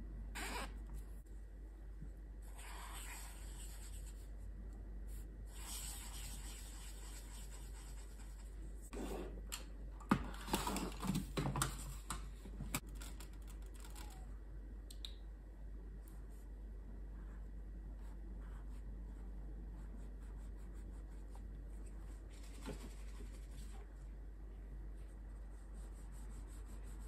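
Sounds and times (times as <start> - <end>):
brush pen rubbing on paper: 5.5 - 8.6.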